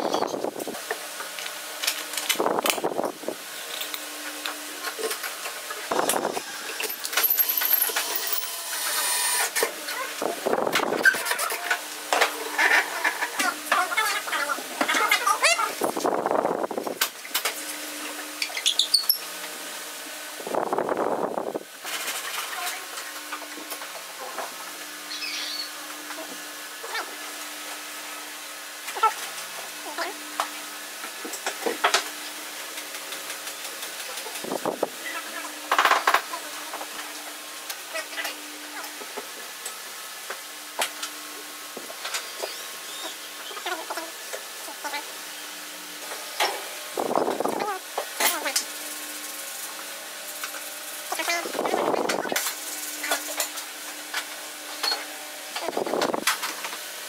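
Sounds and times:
cordless drill motor: 6.0s - 9.7s.

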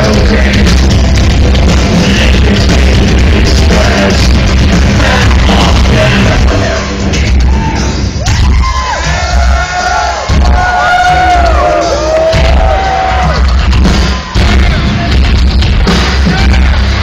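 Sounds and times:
live band playing bass-heavy music: 0.0s - 17.0s.

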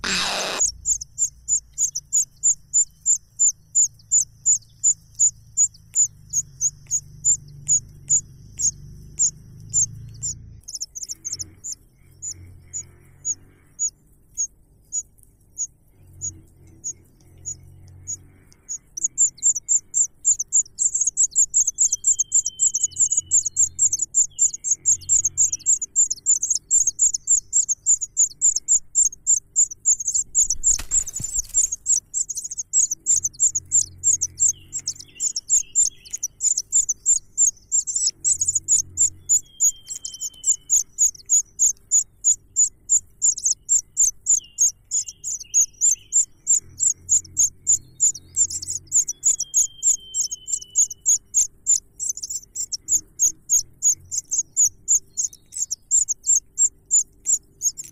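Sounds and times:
wings fluttering: 0.0s - 3.0s, 29.1s - 43.5s
nestlings chirping: 0.0s - 57.9s.

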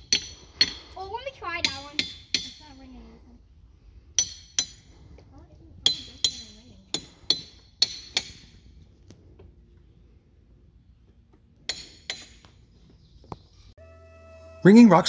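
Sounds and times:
hammer striking rock with ringing: 11.7s - 12.4s.

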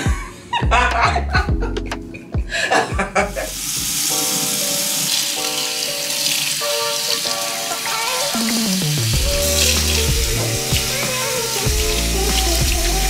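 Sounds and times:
background music with held notes: 0.0s - 13.0s
loud steady hiss: 3.4s - 13.0s.

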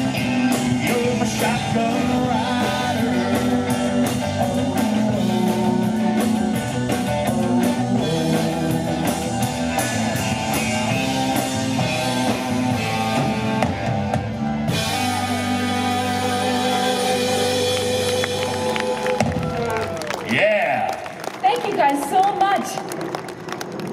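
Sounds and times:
person singing: 0.0s - 9.3s, 15.2s - 19.0s
live rock band playing: 0.0s - 20.3s.

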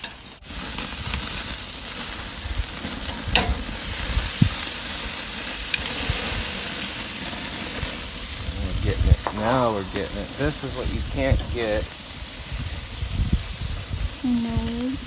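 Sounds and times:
meat sizzling on a grill: 0.4s - 15.0s
metal tongs clicking on grate: 3.1s - 3.6s.

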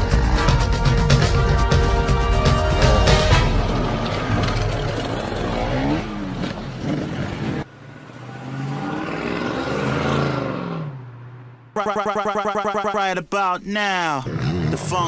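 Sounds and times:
dirt bike engines revving: 3.5s - 10.5s.

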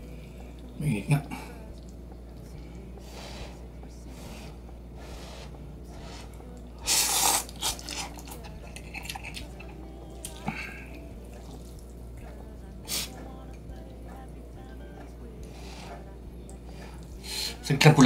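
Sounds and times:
chewing and mouth sounds: 1.7s - 17.4s
noodle slurp: 4.2s - 12.0s.

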